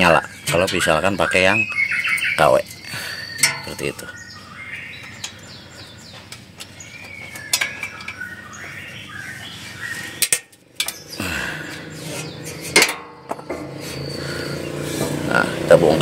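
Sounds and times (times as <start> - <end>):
birds chirping: 0.0 - 16.0
spanner clinking on metal: 3.3 - 4.0.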